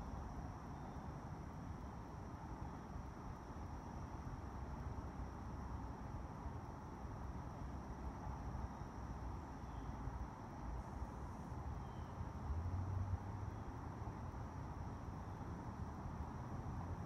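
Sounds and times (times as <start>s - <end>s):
high insect drone: 0.0s - 17.0s.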